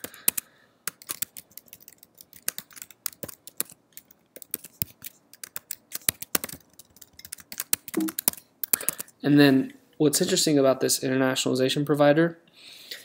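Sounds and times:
computer keyboard typing: 0.0s - 9.2s.

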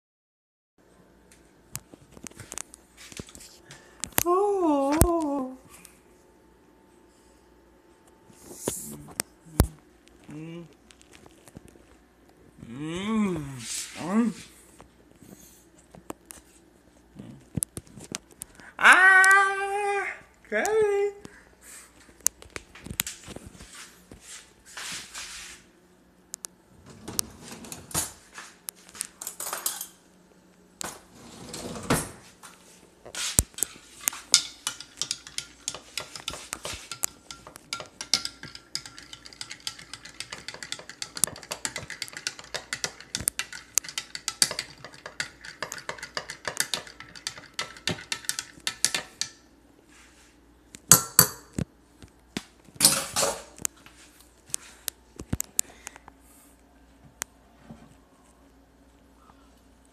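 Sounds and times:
spoon clinking in a glass: 37.3s - 49.0s.

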